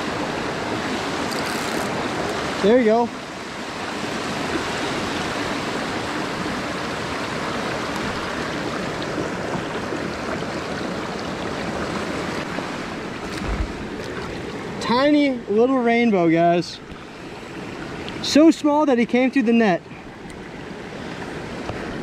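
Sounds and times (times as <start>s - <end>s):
creek rushing over rocks: 0.0s - 22.0s.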